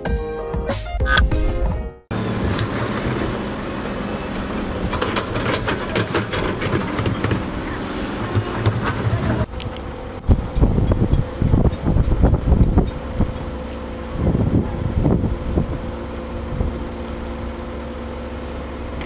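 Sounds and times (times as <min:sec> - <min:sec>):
excavator engine running: 0:01.1 - 0:19.0
low machinery rumble: 0:02.1 - 0:19.0
metallic clanking and rattling: 0:04.5 - 0:09.5
wind buffeting microphone: 0:10.1 - 0:17.0.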